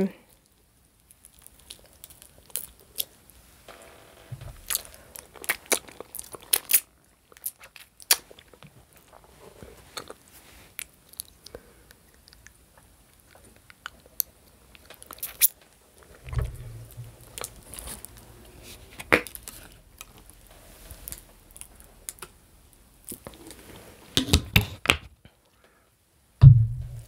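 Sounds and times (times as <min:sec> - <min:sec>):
chewing and biting: 0:04.7 - 0:09.3
closed-mouth hum: 0:16.1 - 0:23.3, 0:26.4 - 0:27.0.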